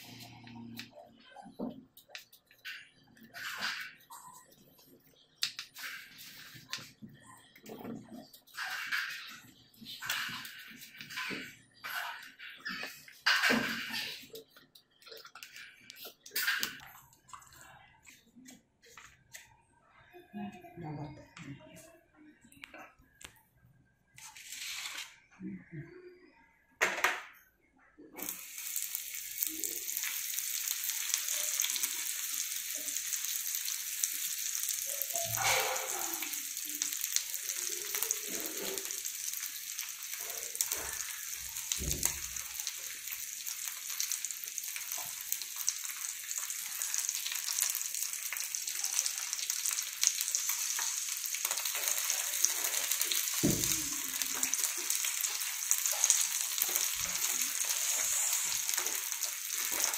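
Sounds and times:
fish sizzling in hot oil: 28.2 - 59.9.

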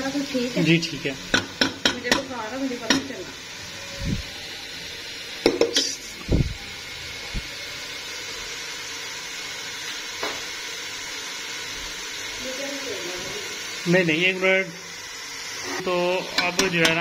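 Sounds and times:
masala sizzling in oil: 0.0 - 17.0
metal ladle knocking pan: 1.3 - 3.2, 5.4 - 5.9, 16.3 - 17.0.

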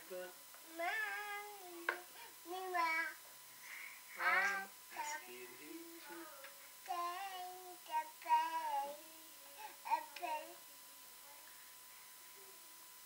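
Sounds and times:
toddler boy singing: 0.6 - 3.2, 4.2 - 10.6.

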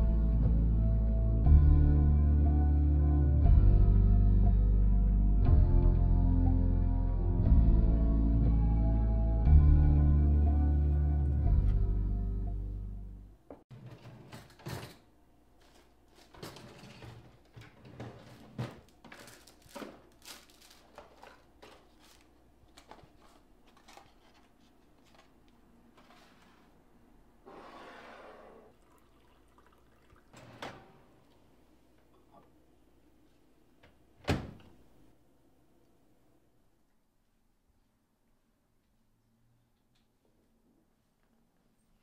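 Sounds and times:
water pouring into a mug: 28.7 - 30.4.

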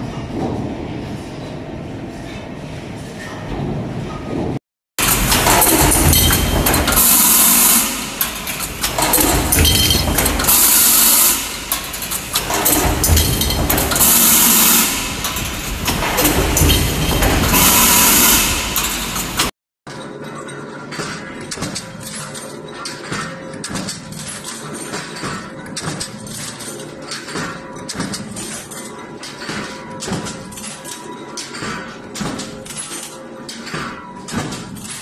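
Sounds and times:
stamping press clatter: 5.0 - 19.5.

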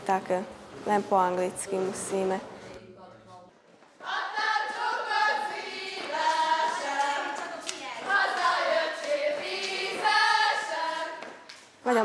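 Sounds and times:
choir singing: 4.0 - 11.4.

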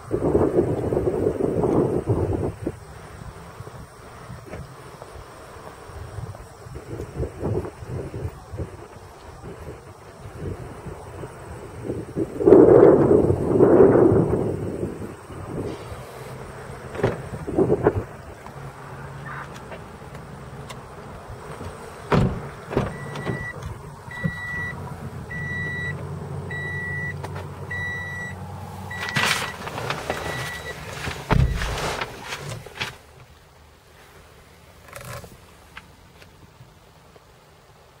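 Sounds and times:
car door thump: 16.9 - 17.6, 21.6 - 24.6, 28.9 - 32.6
car warning chime beeping: 22.9 - 30.8.

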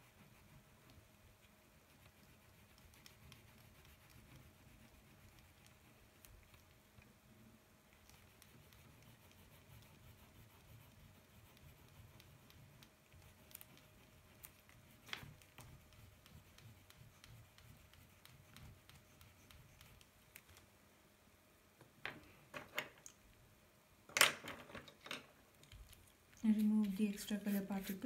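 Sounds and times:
fingertip rubbing on paper: 0.0 - 6.8, 7.9 - 20.2, 26.6 - 28.0
soft ticks and rustles: 0.2 - 20.7.

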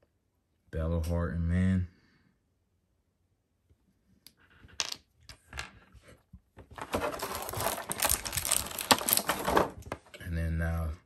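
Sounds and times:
plastic packaging crinkling: 6.8 - 9.8.

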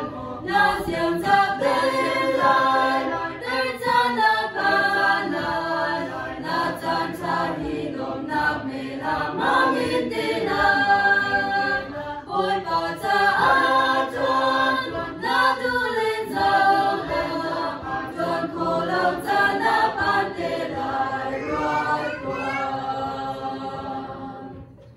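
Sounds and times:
choir singing a hymn: 0.0 - 24.9.

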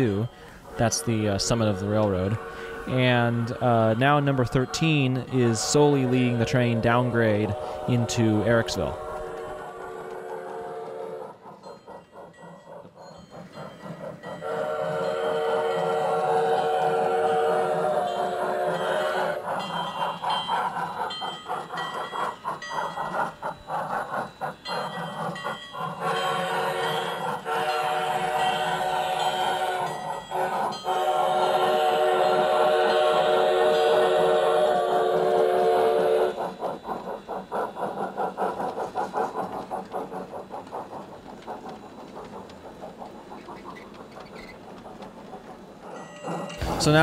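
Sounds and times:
model train wheels clacking on track: 0.0 - 47.0
background music: 46.6 - 47.0.

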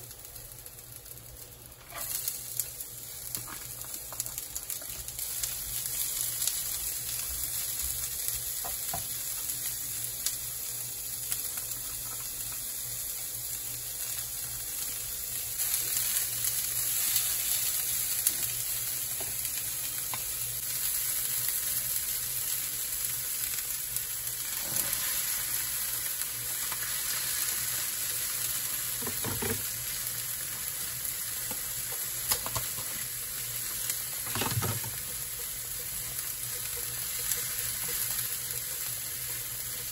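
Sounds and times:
vegetables sizzling in oil: 0.0 - 39.9
spatula scraping wok: 1.8 - 2.2, 24.4 - 25.6.

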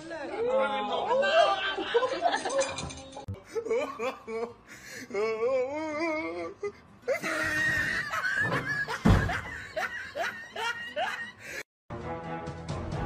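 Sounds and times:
person laughing and shrieking: 3.5 - 11.3
wooden door crashing down: 7.7 - 9.6.

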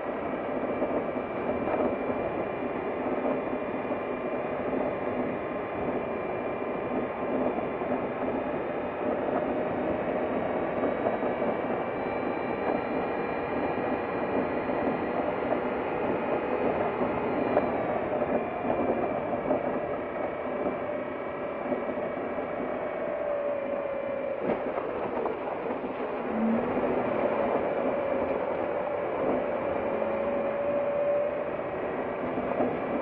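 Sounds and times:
faint drifting tones: 16.1 - 33.0.

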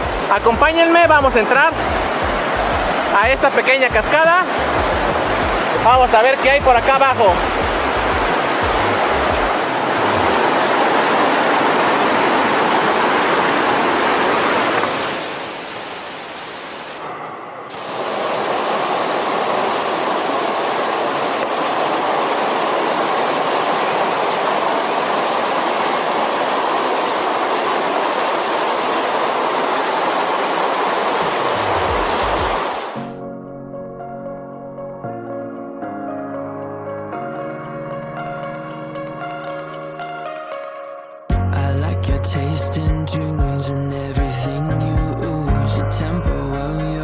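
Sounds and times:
waterfall rushing and splashing: 0.0 - 33.0.

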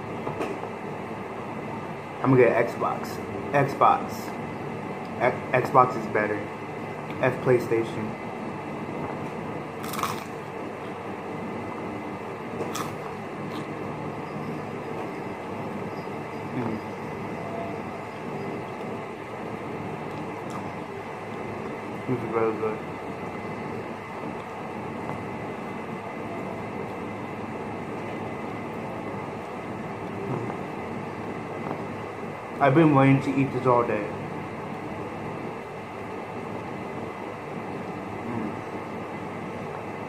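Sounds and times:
background hum: 0.0 - 40.0
chewing crisp tostada: 9.8 - 10.4.

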